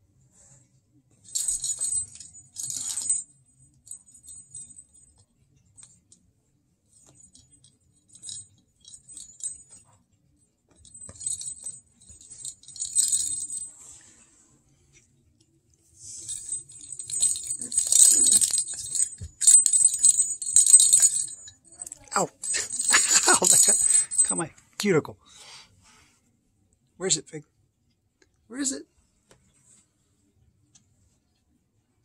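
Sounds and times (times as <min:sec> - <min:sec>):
bell in toy ball jingling: 0:01.2 - 0:05.9, 0:07.1 - 0:09.9, 0:10.8 - 0:14.0, 0:16.0 - 0:24.5.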